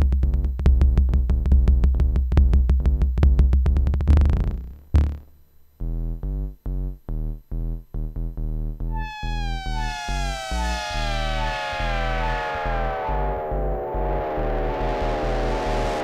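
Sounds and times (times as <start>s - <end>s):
pulsing bass synth: 5.8s - 16.0s
drum machine pattern: 8.9s - 16.0s
high synth tone gliding down: 8.9s - 16.0s.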